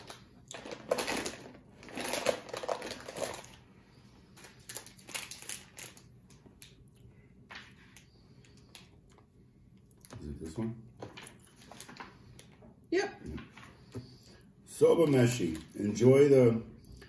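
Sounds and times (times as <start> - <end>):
plastic wrapper crinkling: 0.0 - 3.7, 4.4 - 6.8.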